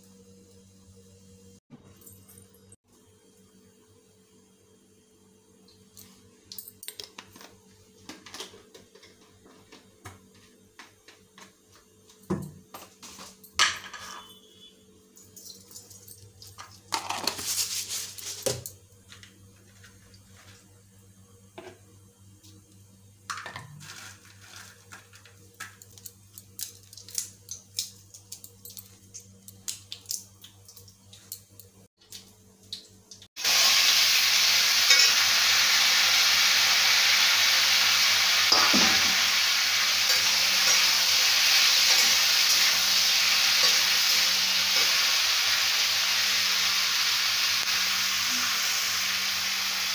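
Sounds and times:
vegetables sizzling in hot oil: 33.3 - 49.9.

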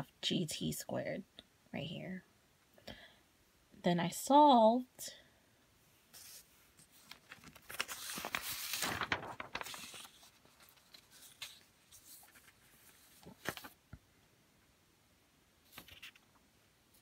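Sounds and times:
paper pages rustling: 6.1 - 13.9, 15.7 - 16.4.

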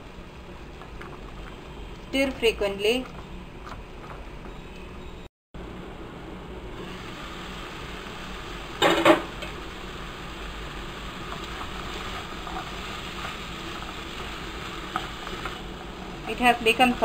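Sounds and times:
low sizzle: 0.0 - 17.0
spatula stirring in a pan: 10.3 - 17.0.

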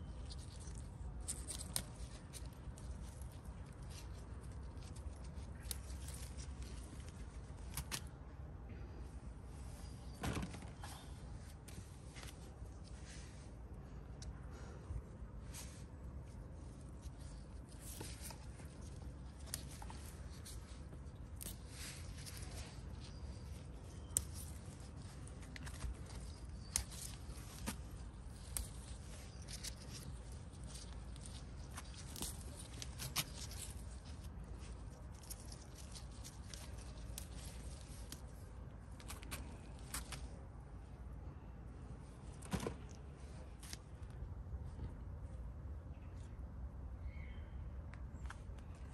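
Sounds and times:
plant leaves rustling: 0.0 - 8.2, 15.4 - 40.6.

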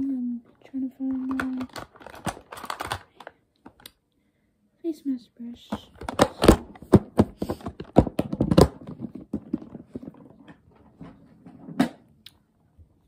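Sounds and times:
rummaging in plastic containers: 0.5 - 3.8, 5.7 - 11.9.

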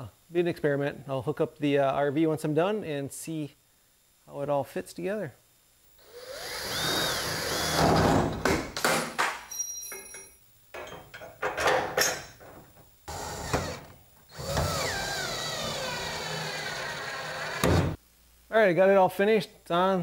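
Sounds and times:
cordless drill boring through steel: 6.0 - 8.0, 13.1 - 17.6.

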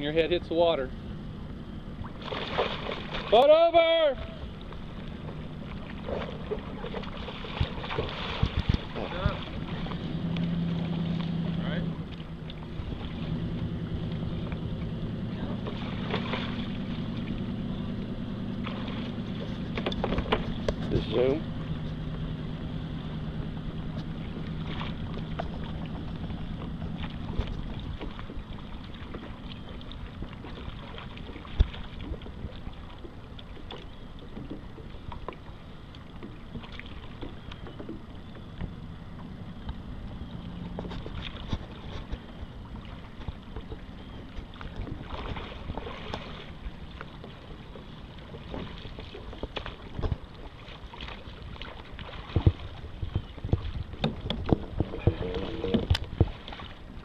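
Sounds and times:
water lapping and splashing: 0.0 - 57.0.

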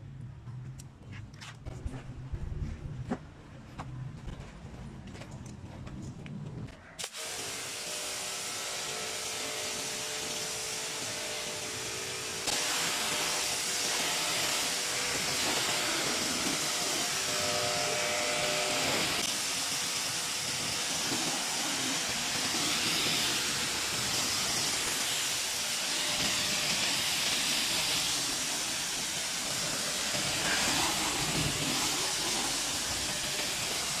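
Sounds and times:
pressure washer spraying water: 7.0 - 34.0.

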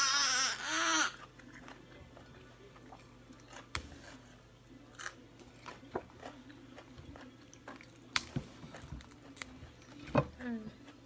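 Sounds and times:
raw vegetables crunching and snapping: 4.9 - 11.0.

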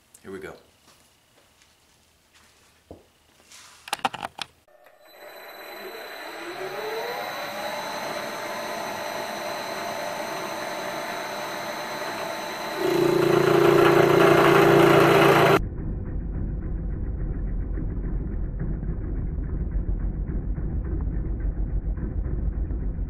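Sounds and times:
milling machine whining: 4.7 - 15.6.

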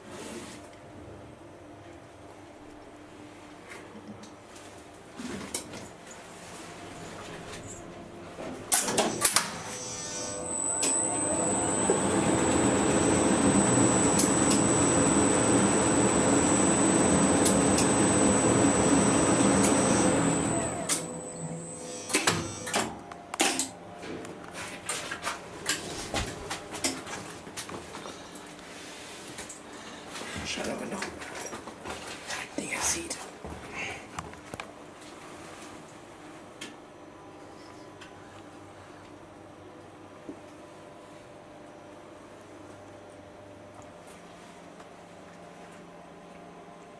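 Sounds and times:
high whine: 9.6 - 22.7
elevator machinery running: 9.7 - 22.8.

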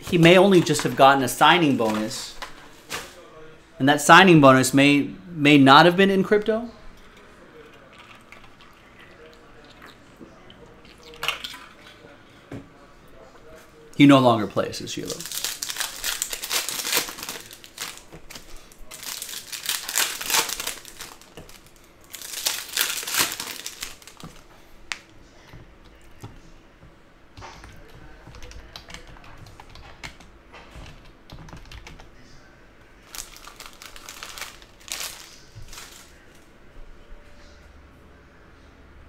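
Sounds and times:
foil card packs crinkling: 0.0 - 3.2, 15.0 - 25.0, 33.0 - 36.3.

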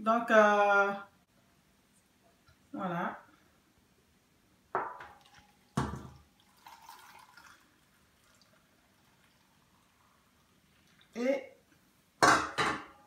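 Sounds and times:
liquid splashing into a jar: 4.8 - 9.5
thin liquid trickle: 5.1 - 11.3.

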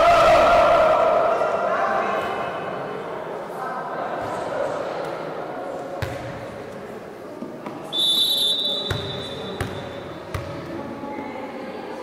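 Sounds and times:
referee's whistle blast: 7.9 - 9.6.

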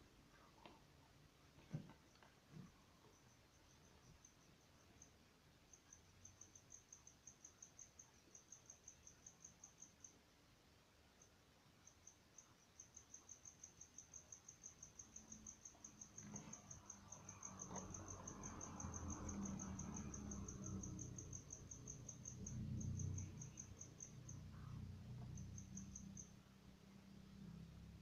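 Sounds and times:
cricket chirping: 1.6 - 28.0
faint low rumble: 14.7 - 28.0.

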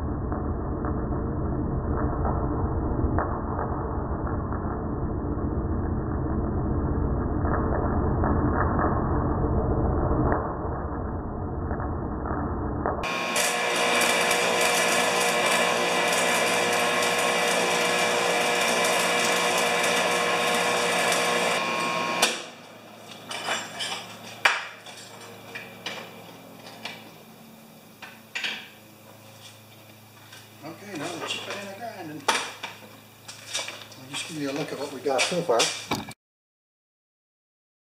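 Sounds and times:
slowed welding rumble: 0.0 - 28.2
arc welding crackling hiss: 13.0 - 35.9.

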